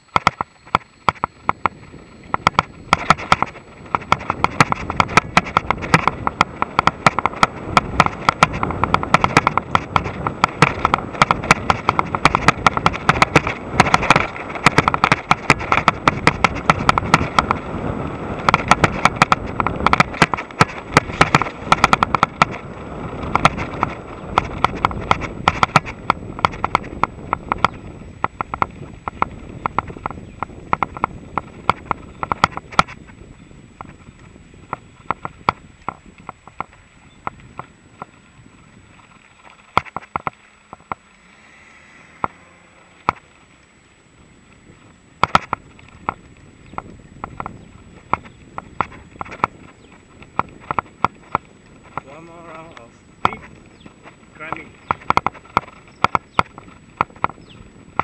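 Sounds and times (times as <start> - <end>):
bike rattling and knocking: 0.0 - 41.2, 42.2 - 58.0
tyre noise: 0.0 - 58.0
wind noise: 0.0 - 58.0.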